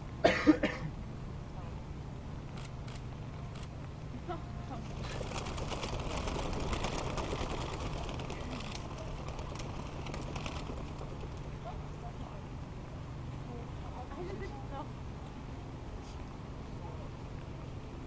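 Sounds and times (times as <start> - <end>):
doves flapping wings: 2.6 - 12.6.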